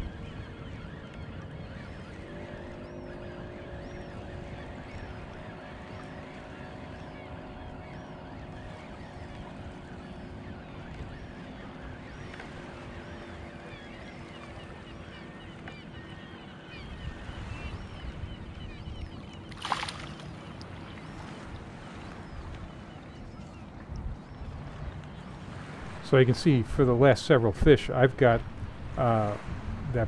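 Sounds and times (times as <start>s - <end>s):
steady wind: 0.0s - 30.0s
sharp splash: 19.5s - 20.4s
fish thrashing in water: 19.5s - 20.6s.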